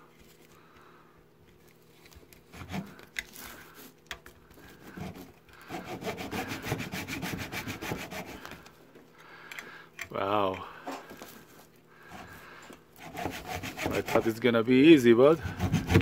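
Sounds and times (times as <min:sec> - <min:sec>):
hand saw cutting hard plastic: 0:04.8 - 0:08.5, 0:13.0 - 0:14.4, 0:15.3 - 0:16.0.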